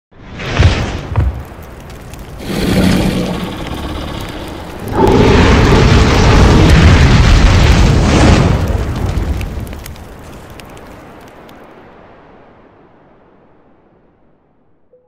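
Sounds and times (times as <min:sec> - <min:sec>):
fire breath blast with deep rumble: 0:00.3 - 0:10.8
dragon roar: 0:02.4 - 0:07.5.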